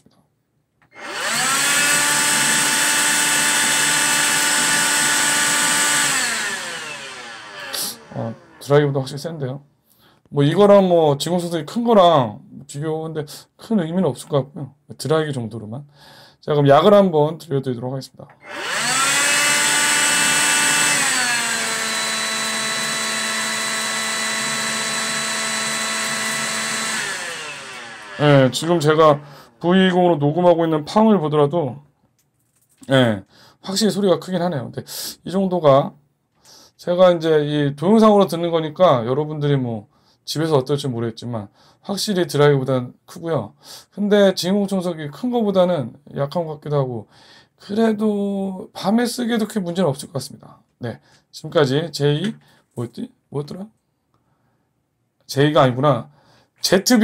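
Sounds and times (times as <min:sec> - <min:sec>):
hand vacuum running: 0:01.0 - 0:08.7, 0:18.4 - 0:29.4.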